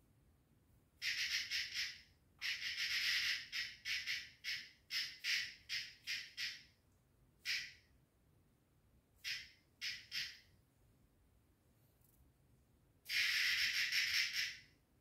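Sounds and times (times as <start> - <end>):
small animal harsh raspy calls: 1.0 - 6.8, 7.4 - 7.9, 9.2 - 10.5, 13.1 - 14.8.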